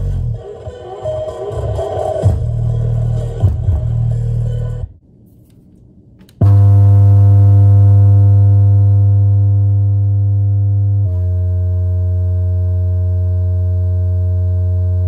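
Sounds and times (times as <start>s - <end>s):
low bass guitar tones: 6.4s - 15.0s.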